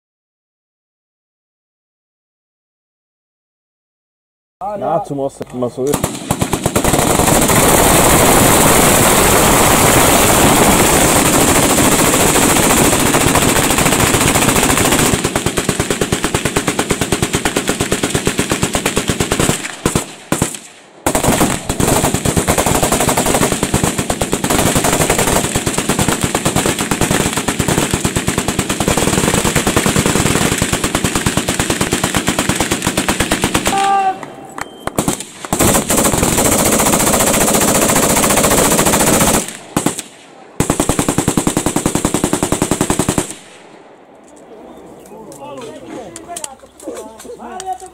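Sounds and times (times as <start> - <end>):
machine guns firing full-auto: 5.8 - 33.9, 34.9 - 43.6.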